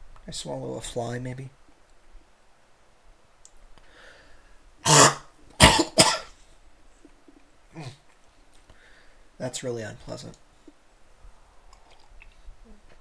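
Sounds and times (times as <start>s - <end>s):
man coughing: 4.8s - 6.3s
man clearing his throat: 4.9s - 6.3s.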